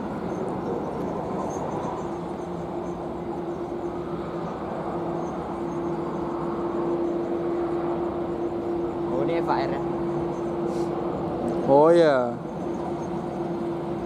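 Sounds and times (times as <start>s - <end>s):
jet engines running: 0.0s - 14.0s.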